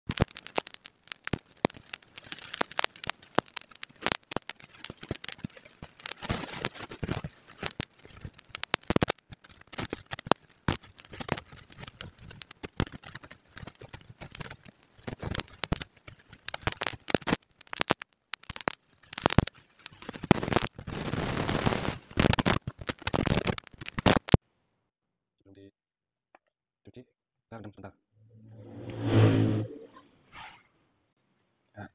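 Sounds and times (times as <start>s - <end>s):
rustling of fish flakes: 0.0s - 24.4s
fingers shredding cooked fish: 0.1s - 24.3s.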